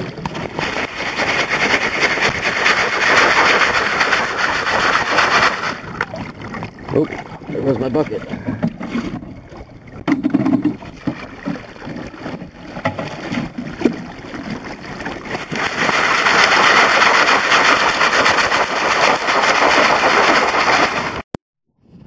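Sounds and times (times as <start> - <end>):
stones knocking against bucket: 10.0 - 14.0.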